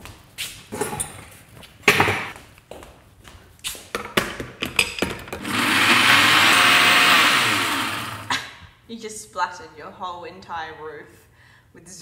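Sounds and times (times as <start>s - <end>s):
blender running: 5.4s - 8.4s.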